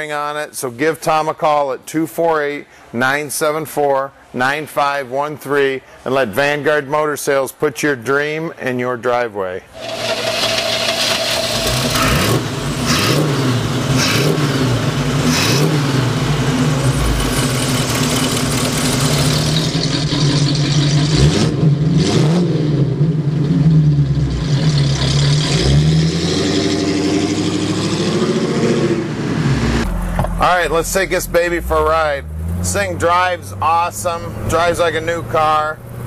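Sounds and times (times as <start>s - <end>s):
car driving off: 9.8s - 36.0s
car engine revving: 9.8s - 36.0s.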